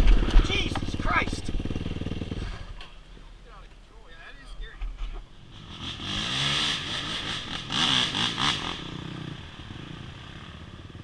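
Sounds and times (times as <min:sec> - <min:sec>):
motorcycle engine revving: 0:00.0 - 0:03.0, 0:05.3 - 0:11.0.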